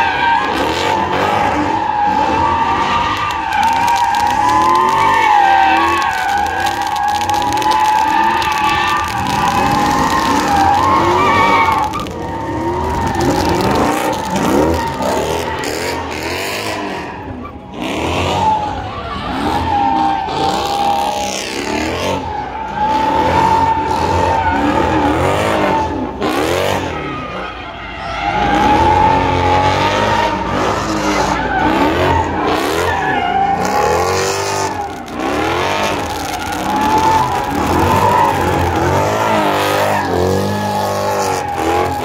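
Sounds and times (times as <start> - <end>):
tyres squealing: 0.0 - 17.6, 26.8 - 42.0
car engine revving: 0.0 - 27.4, 28.0 - 42.0.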